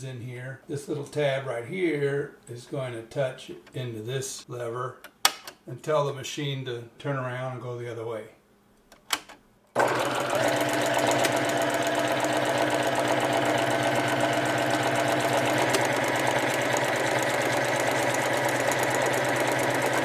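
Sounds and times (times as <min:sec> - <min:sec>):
sewing machine running: 0:09.8 - 0:20.0.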